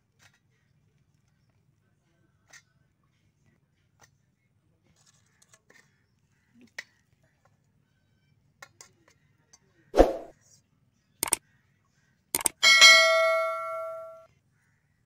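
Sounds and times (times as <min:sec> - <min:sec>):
double mouse click: 0:12.4 - 0:12.6
spoon clinking on steel plate: 0:12.4 - 0:14.2.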